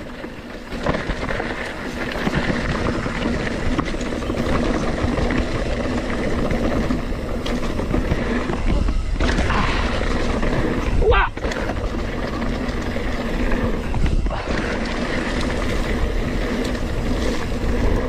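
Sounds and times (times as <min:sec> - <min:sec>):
bike rattling over rough ground: 0:00.0 - 0:18.0
wind rushing over microphone: 0:00.7 - 0:18.0.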